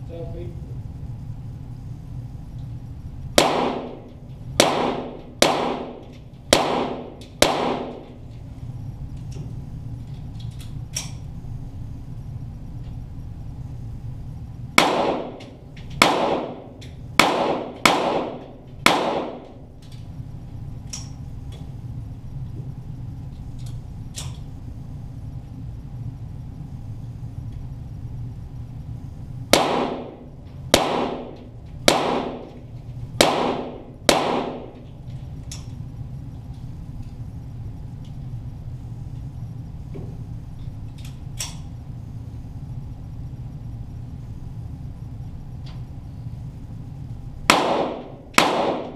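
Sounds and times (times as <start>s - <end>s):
pistol shots with echo: 3.4s - 8.1s, 14.8s - 19.6s, 29.5s - 32.6s, 33.2s - 34.8s, 47.5s - 48.9s.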